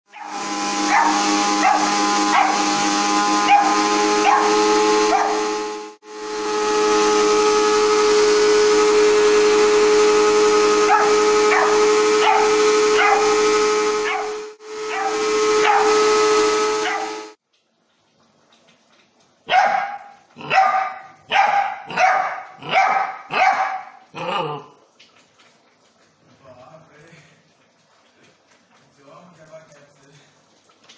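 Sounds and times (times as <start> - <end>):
mixer grinder motor whine: 0.1 - 17.4
puppy barking: 0.9 - 2.6, 3.4 - 5.4, 10.9 - 13.4, 14.0 - 16.0, 16.8 - 17.1, 19.5 - 24.7.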